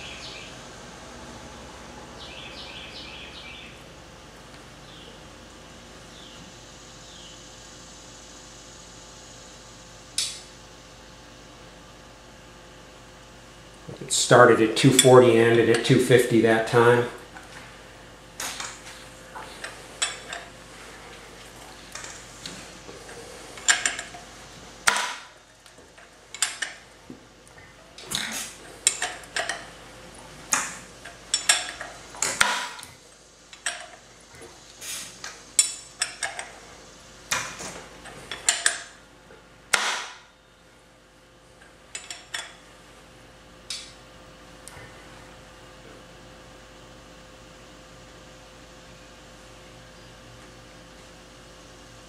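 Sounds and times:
faint steady hum: 0.0 - 52.0.

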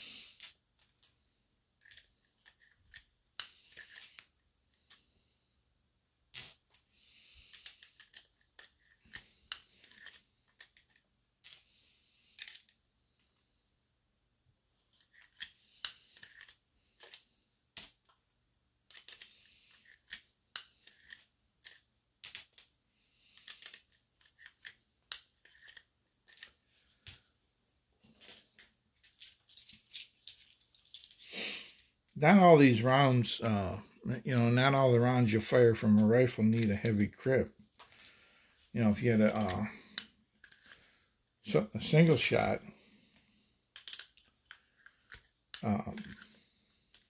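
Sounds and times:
metal cartridges clinking: 0.3 - 1.2, 1.8 - 5.0, 6.3 - 13.4, 15.1 - 18.2, 18.9 - 22.7, 23.3 - 27.3, 28.0 - 32.2, 34.1 - 38.3, 38.9 - 40.8, 41.8 - 42.5, 43.2 - 47.0.

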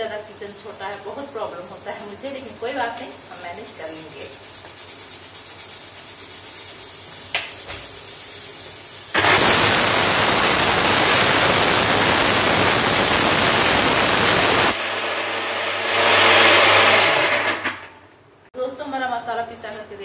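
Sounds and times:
mixer grinder whirring: 9.2 - 17.8.

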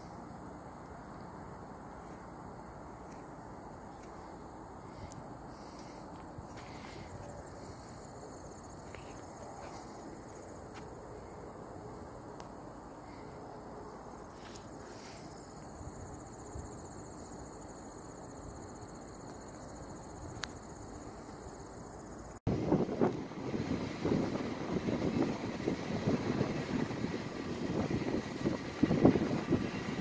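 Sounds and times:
insects trilling: 0.0 - 22.4
faint outdoor background noise: 0.0 - 30.0.

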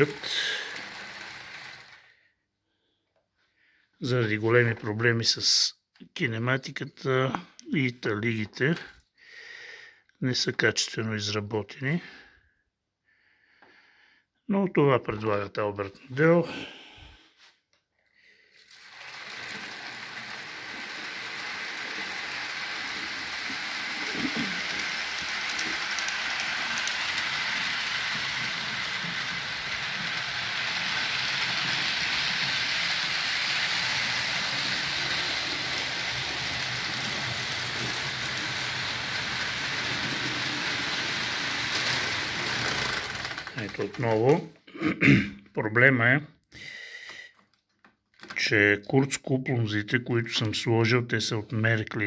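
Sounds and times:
model train wagons clattering: 0.0 - 2.1, 18.7 - 44.5.

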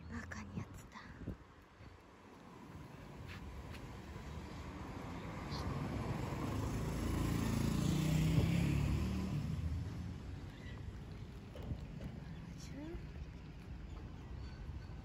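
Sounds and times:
vehicle driving past: 3.9 - 13.2.

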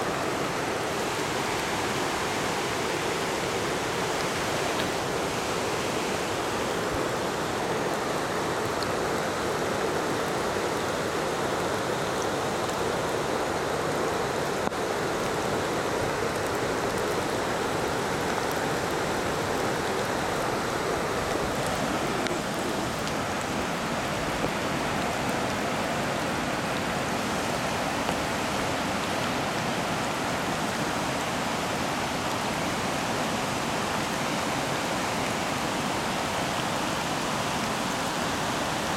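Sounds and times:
floodwater rushing in creek: 0.0 - 38.9.

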